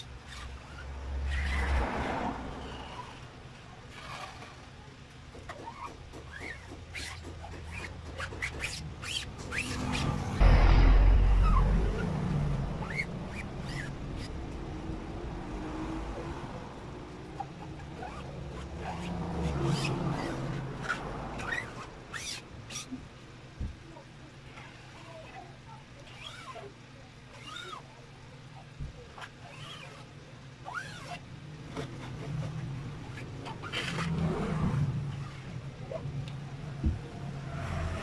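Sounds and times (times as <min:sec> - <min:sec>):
small squeaks: 0:00.0 - 0:01.8, 0:05.3 - 0:14.5, 0:17.2 - 0:23.0, 0:24.5 - 0:34.7
scraper scraping across mesh: 0:00.0 - 0:10.6, 0:17.2 - 0:23.0, 0:29.2 - 0:36.0
loud low rumble: 0:10.2 - 0:17.0.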